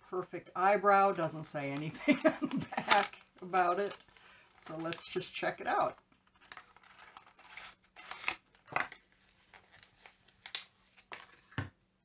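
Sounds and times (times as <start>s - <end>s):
packaging clicks and rustles: 1.8s - 5.3s, 5.9s - 11.6s.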